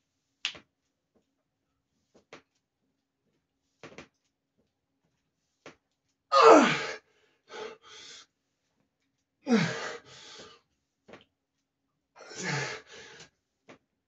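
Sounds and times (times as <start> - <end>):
man grunting with strain: 6.3 - 7.0, 9.5 - 10.0, 12.2 - 12.8
sharp breaths: 9.5 - 10.6.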